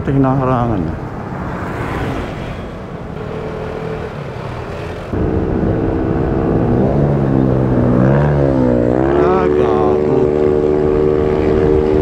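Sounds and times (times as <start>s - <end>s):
wind and road noise: 0.0s - 12.0s
scooter engine cruising: 1.0s - 12.0s.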